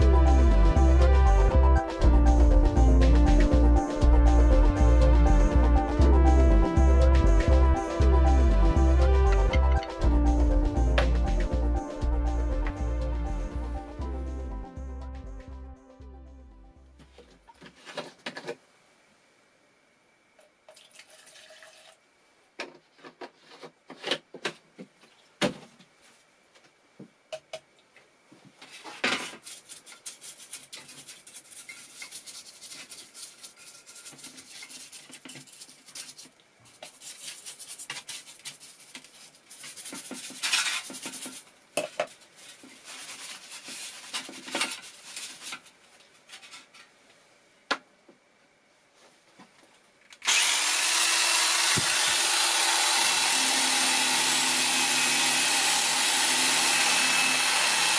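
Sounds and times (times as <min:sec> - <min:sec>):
brush scrubbing inside cast iron: 0:29.3 - 0:41.5.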